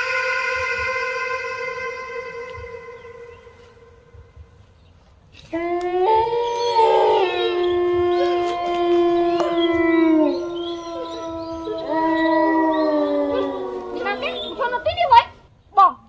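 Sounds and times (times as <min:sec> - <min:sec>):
dogs howling together: 0:05.5 - 0:15.2.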